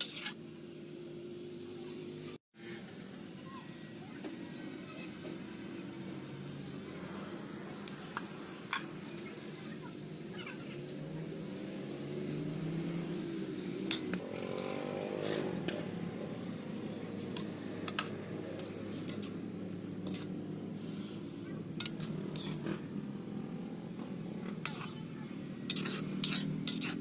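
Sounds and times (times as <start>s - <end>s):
utensil clinking against a pot: 25.7s - 27.0s.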